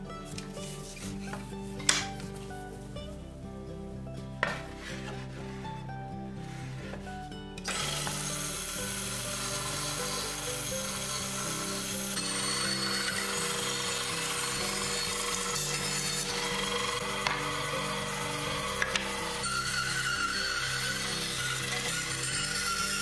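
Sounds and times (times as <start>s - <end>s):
background music: 0.0s - 23.0s
bandsaw cutting wood: 7.7s - 23.0s.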